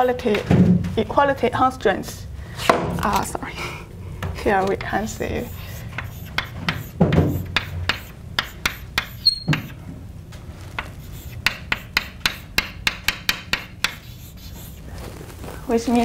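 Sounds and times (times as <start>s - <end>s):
chalk tapping and scratching: 4.6s - 9.8s, 10.7s - 15.1s.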